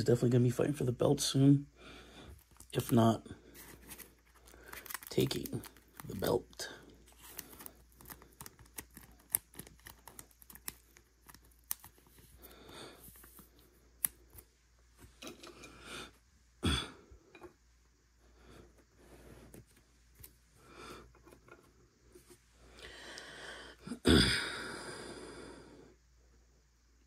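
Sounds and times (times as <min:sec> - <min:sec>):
cards clicking and tapping: 0:07.2 - 0:12.3.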